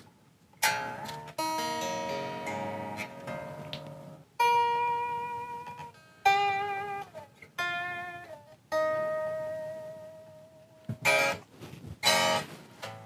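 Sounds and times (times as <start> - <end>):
strummed guitar chord: 0.6 - 10.2
unamplified guitar strings plucked: 0.6 - 11.4.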